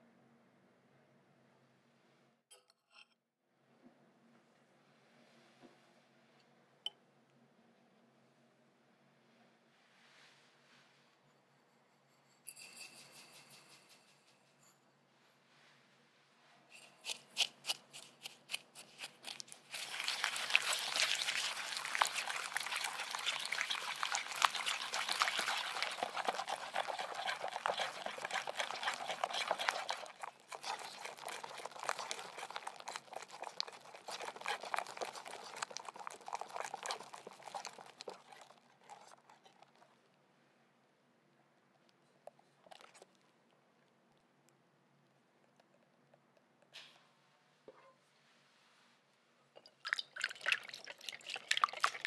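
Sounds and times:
whisk scraping a glass bowl: 0:16.7 - 0:39.8.

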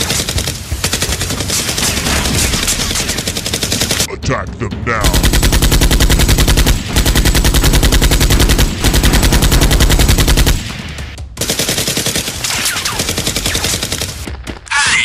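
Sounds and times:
automatic gunfire sound effect: 0:05.0 - 0:14.5.

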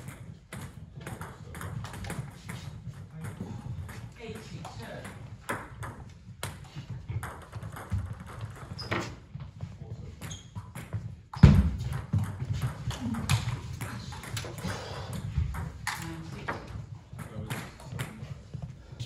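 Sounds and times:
table tennis ball bouncing: 0:00.0 - 0:09.2, 0:10.2 - 0:18.3
footsteps on sports hall floor: 0:07.9 - 0:14.1, 0:16.4 - 0:19.0.

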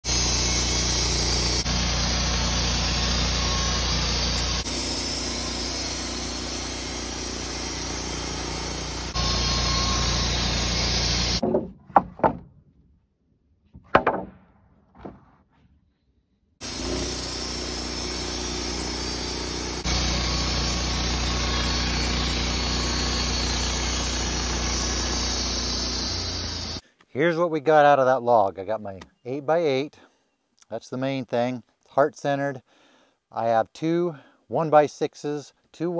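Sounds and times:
band sawmill cutting wood: 0:00.0 - 0:11.4, 0:16.6 - 0:26.8
sharp knocks: 0:11.4 - 0:12.5, 0:13.8 - 0:15.3.

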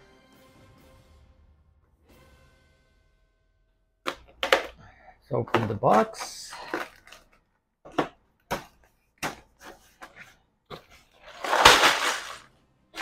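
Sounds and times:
packaging rustling: 0:05.5 - 0:08.1, 0:10.8 - 0:13.0.

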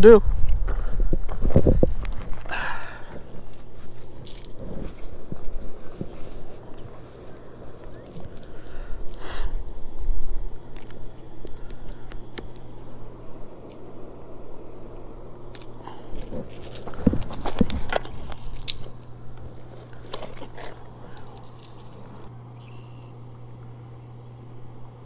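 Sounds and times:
steady low hum: 0:00.0 - 0:25.0.

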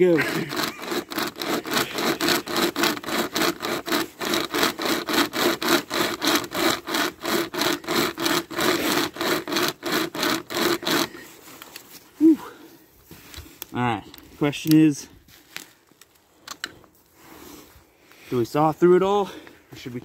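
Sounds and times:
saw chain rasping through log: 0:00.0 - 0:11.5.

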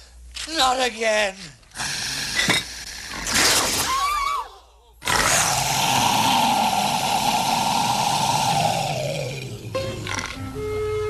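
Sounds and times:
long loud harsh noise: 0:05.4 - 0:11.0.

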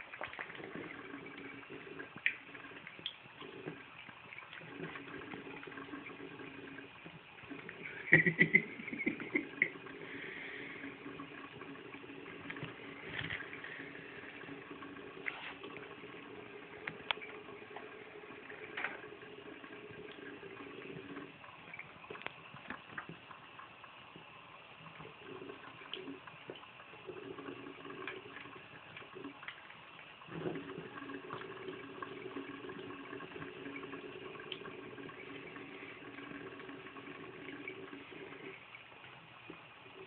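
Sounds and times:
small taps and splashes: 0:00.0 - 0:00.6, 0:02.2 - 0:05.4, 0:21.7 - 0:23.4
faucet water running into sink: 0:00.0 - 0:40.0.

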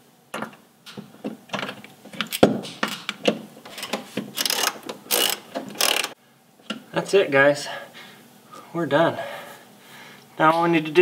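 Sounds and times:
metal clicks and knocks: 0:00.3 - 0:06.8
socket ratchet clicking: 0:03.8 - 0:06.2.

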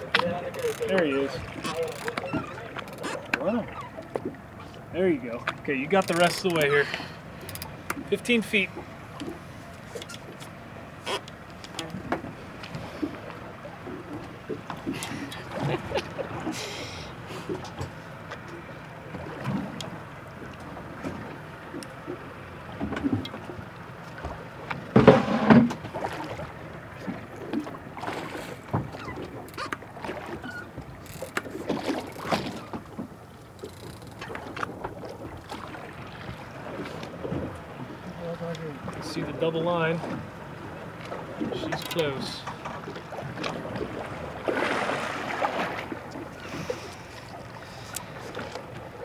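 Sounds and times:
boat engine low noise: 0:00.0 - 0:49.0
water rushing: 0:00.0 - 0:49.0.

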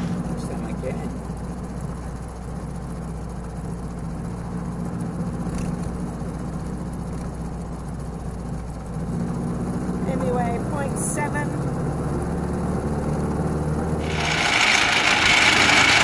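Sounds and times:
tyre and road noise: 0:00.0 - 0:00.8, 0:13.9 - 0:16.0
car engine running: 0:00.0 - 0:16.0.

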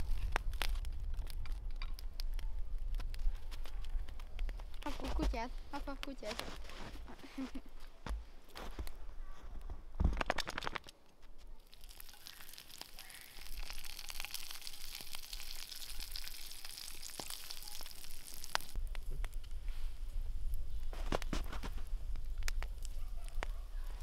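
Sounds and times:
handling noises: 0:03.0 - 0:11.6
food sizzling in a pan: 0:11.6 - 0:18.8.

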